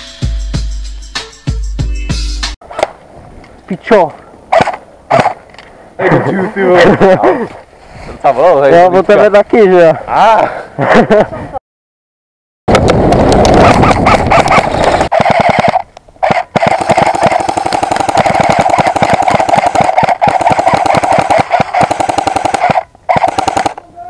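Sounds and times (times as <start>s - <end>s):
airsoft rifle full-auto bursts: 14.0s - 23.8s.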